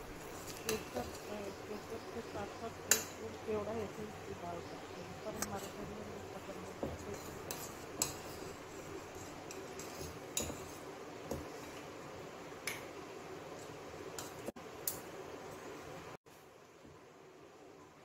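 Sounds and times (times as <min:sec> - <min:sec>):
spoon scraping metal pot: 0:00.2 - 0:03.4, 0:05.2 - 0:10.9.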